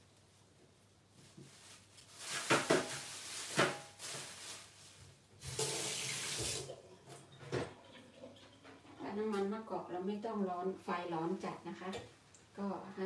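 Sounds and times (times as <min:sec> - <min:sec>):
tap running: 0:05.5 - 0:08.8
dishes clinking in a sink: 0:06.4 - 0:09.5.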